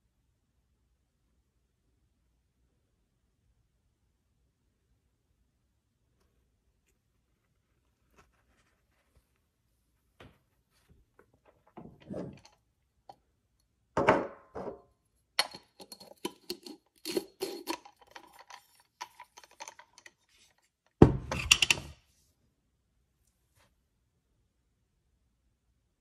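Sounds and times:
jar clicking and scraping on threads: 15.4s - 21.9s.

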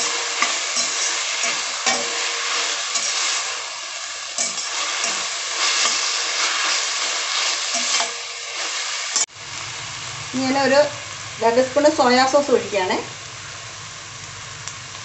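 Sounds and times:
vegetables sizzling in a pan: 0.0s - 15.0s
utensil scraping a pan: 4.4s - 9.3s.

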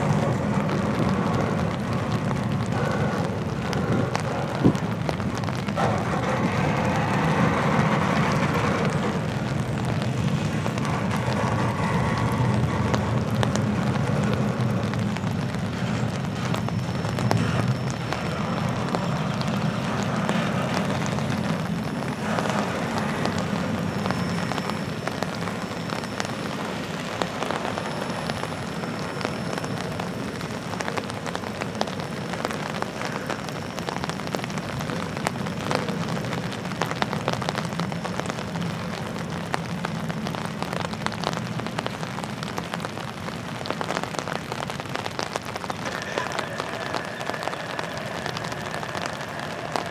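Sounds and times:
train wheels rumbling on rails: 0.0s - 49.9s.

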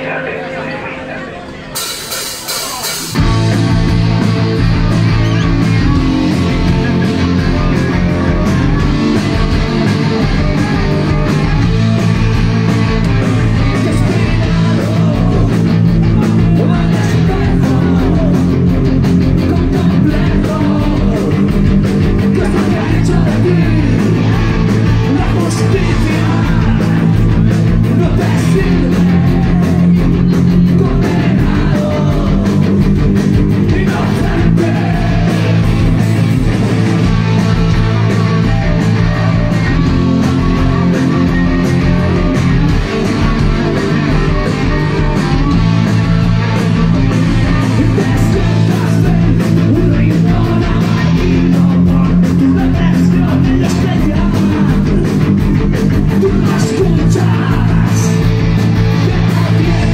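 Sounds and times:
live rock band playing: 0.0s - 59.9s
person singing: 13.0s - 18.8s, 19.4s - 21.6s, 22.2s - 32.9s, 33.6s - 36.2s, 37.4s - 55.2s, 56.0s - 58.3s, 59.0s - 59.9s.

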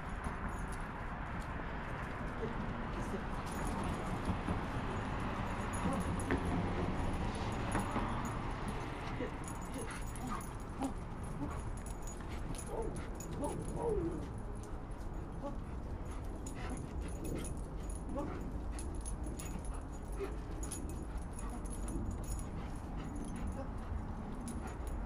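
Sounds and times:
dog whining and yipping: 9.2s - 14.4s.

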